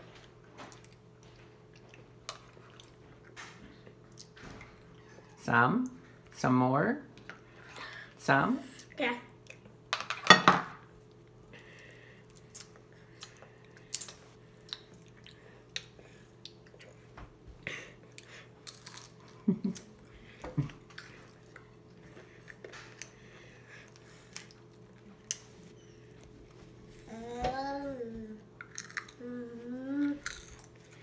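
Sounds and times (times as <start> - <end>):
steady low hum: 10.7 - 31.0
chips crunching while chewed: 18.6 - 19.4, 28.6 - 29.2, 30.2 - 31.0.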